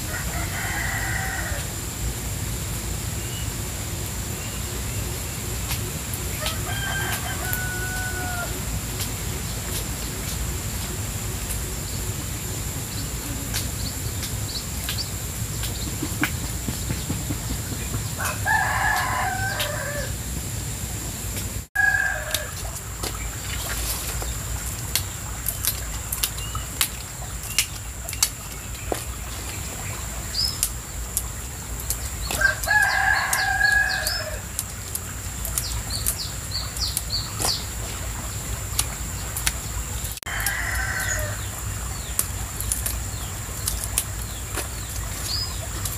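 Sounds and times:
rooster crowing: 0.0 - 1.8, 6.3 - 8.8, 17.1 - 20.3, 21.8 - 22.8, 32.3 - 34.5, 40.3 - 41.6
stream water running: 0.0 - 45.9
vegetable stalks snapping: 5.7 - 11.7, 18.9 - 20.0, 25.0 - 29.1, 30.6 - 37.7, 42.0 - 45.9.

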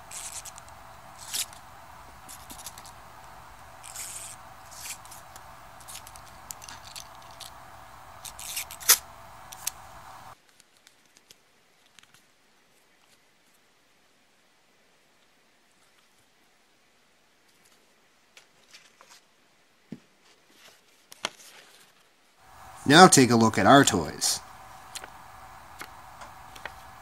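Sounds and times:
steady background hiss: 0.0 - 10.4, 22.2 - 27.0
plastic toy clicks and scrapes: 0.1 - 1.6, 3.8 - 5.2, 8.2 - 9.8.

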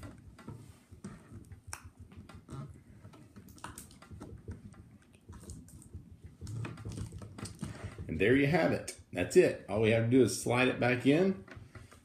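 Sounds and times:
fingers tapping plastic: 0.0 - 8.3.

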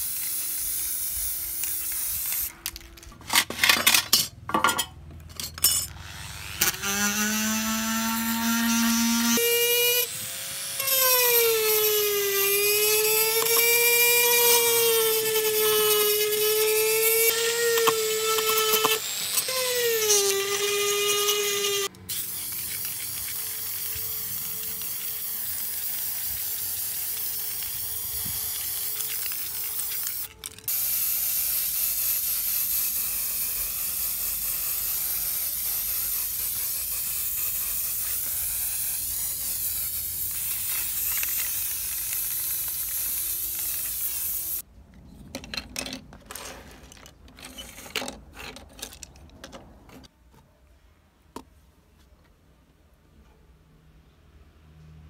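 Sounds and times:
paint spraying hiss: 0.0 - 2.5, 22.1 - 44.6
small plastic parts clicking: 1.5 - 4.2, 17.7 - 30.7, 45.0 - 50.1
rotary tool whining on metal: 5.4 - 31.1.

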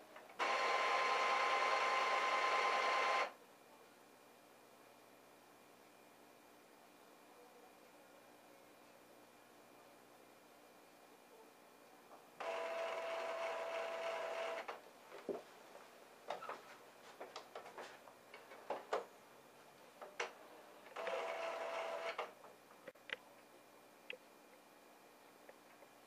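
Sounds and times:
printer mechanism whirring: 0.2 - 3.4, 12.4 - 14.8, 20.2 - 22.4.

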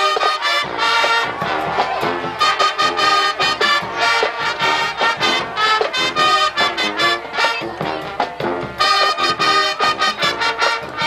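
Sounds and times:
brass accented chords: 0.0 - 11.0
marching band playing: 0.0 - 11.0.

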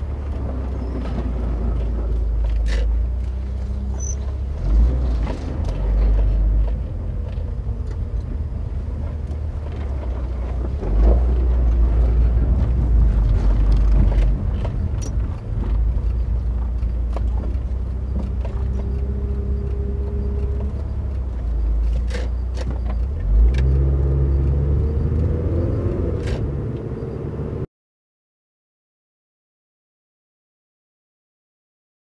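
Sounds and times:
car engine and road rumble: 0.0 - 27.7
sharp clicks and knocks: 9.1 - 24.1.

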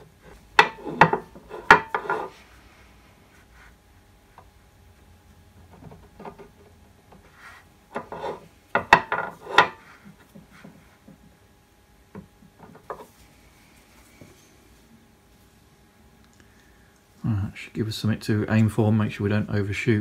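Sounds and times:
scriber scratching metal: 0.6 - 2.4, 7.2 - 8.5.

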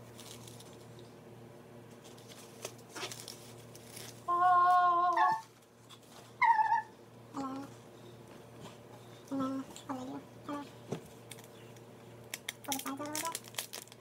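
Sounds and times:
animal calls: 4.3 - 5.5, 6.4 - 7.7.

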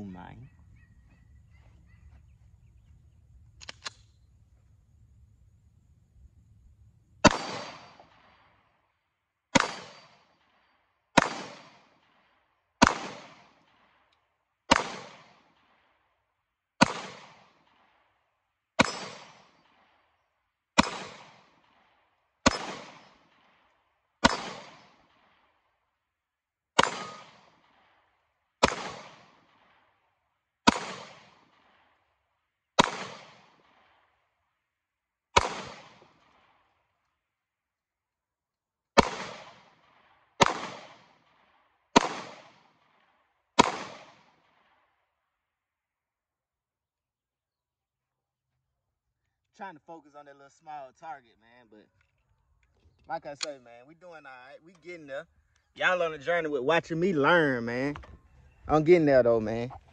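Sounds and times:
pistol shots with echo: 7.2 - 8.6, 9.5 - 14.0, 14.7 - 15.8, 16.8 - 18.1, 18.8 - 20.0, 20.8 - 23.6, 24.2 - 25.5, 26.8 - 28.0, 28.6 - 29.9, 30.6 - 32.0, 32.8 - 34.1, 35.4 - 36.7, 39.0 - 44.9.

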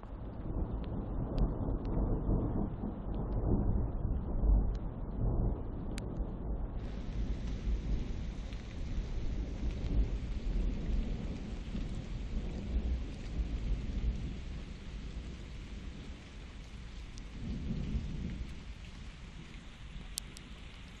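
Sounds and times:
rolling thunder: 0.0 - 21.0
rain hiss: 6.8 - 21.0.

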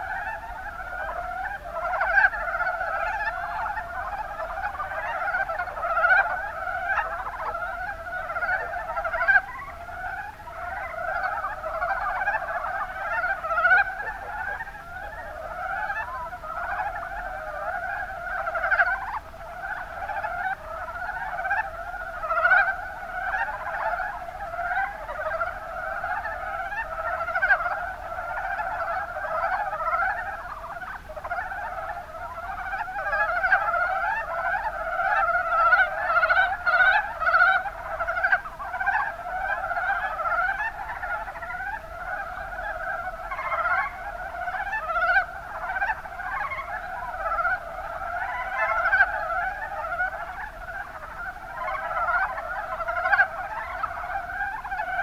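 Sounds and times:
frogs calling in chorus: 0.0 - 55.0.

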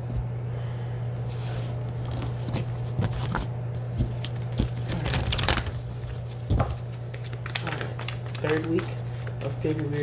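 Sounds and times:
steady low hum: 0.0 - 10.0
cards being shuffled: 1.3 - 10.0.

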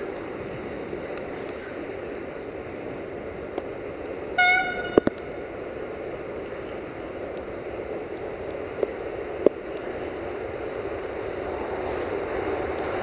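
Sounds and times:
diesel locomotive engine running: 0.0 - 13.0
rain hissing: 0.0 - 13.0.

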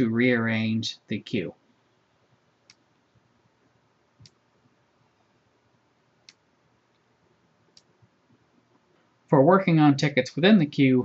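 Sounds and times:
faint computer mouse clicks: 4.2 - 4.4, 6.2 - 7.1, 7.7 - 7.9.

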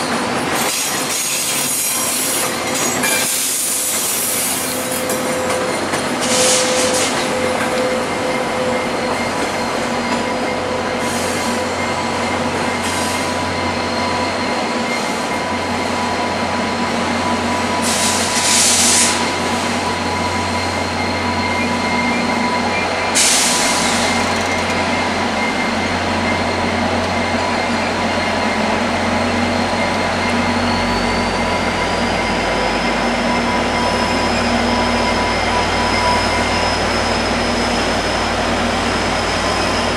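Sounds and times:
diesel locomotive engines whining: 0.0 - 39.9.

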